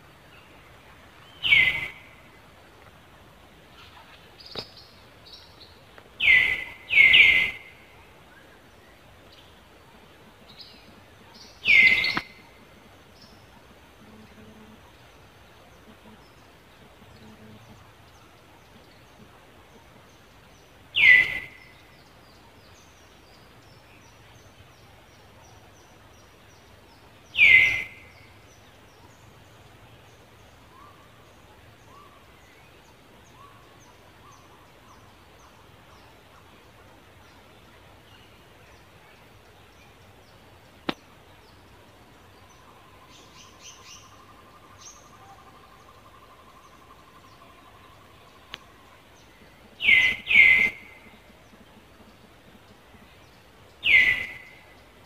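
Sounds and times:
faint bird chirping: 0:00.0 - 0:55.0
insect chirping: 0:10.6 - 0:13.5.

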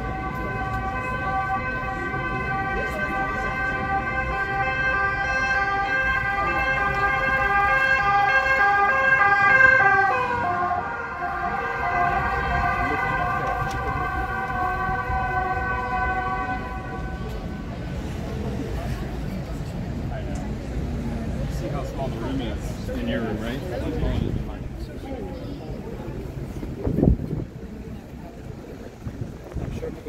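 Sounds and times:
emergency vehicle siren passing: 0:00.0 - 0:19.2.

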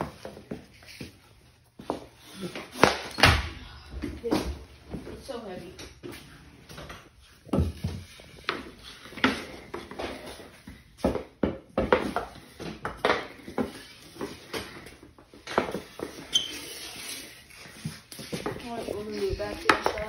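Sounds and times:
stick knocking puck on concrete: 0:18.2 - 0:20.0.

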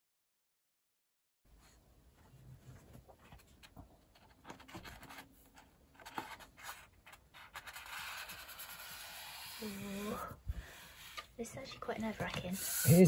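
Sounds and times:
paper rustling: 0:02.6 - 0:09.0.

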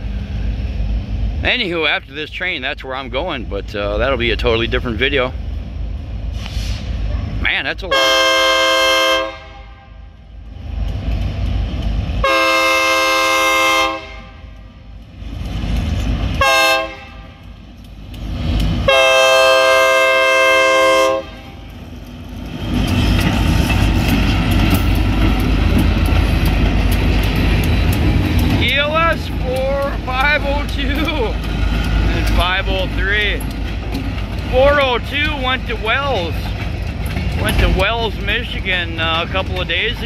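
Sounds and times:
locomotives rumbling past: 0:00.0 - 0:40.0
locomotive air horn blasts: 0:06.5 - 0:10.1, 0:12.2 - 0:14.6, 0:16.4 - 0:17.4, 0:18.8 - 0:21.6.

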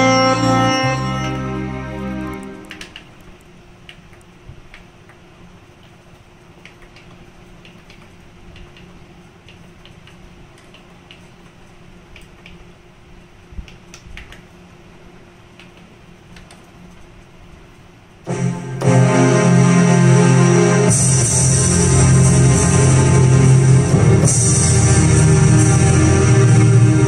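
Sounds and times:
low electrical hum: 0:00.0 - 0:27.0
keyboard keys clicking: 0:02.3 - 0:05.2, 0:05.8 - 0:12.6.

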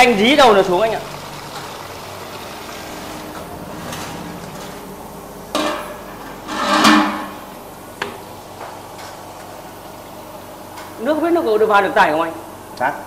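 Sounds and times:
steady low hum: 0:00.0 - 0:11.4
stick scraping in bucket: 0:06.0 - 0:07.5.

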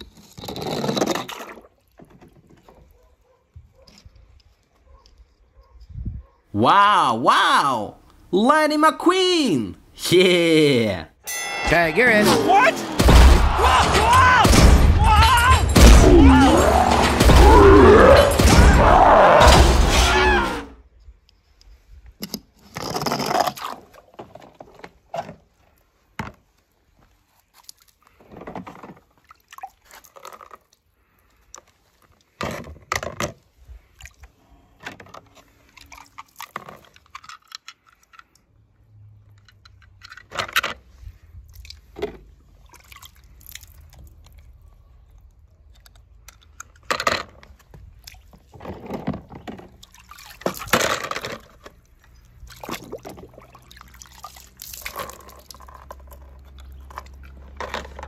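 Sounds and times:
water splashing and dripping: 0:29.1 - 0:30.7, 0:41.3 - 0:46.6, 0:47.7 - 0:48.6, 0:49.5 - 0:57.6.

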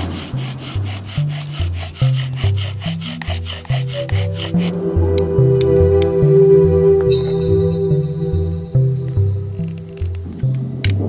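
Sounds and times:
bow drill wood-on-wood strokes: 0:00.0 - 0:06.2
background music with bassline: 0:01.0 - 0:11.0.

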